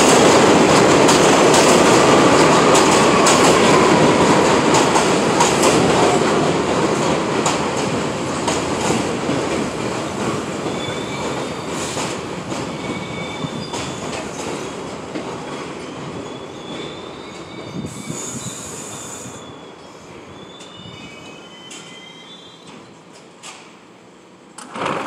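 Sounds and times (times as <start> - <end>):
train wheels rumbling: 0.0 - 19.4
high brake and wheel squeals: 12.7 - 14.0, 16.2 - 22.8.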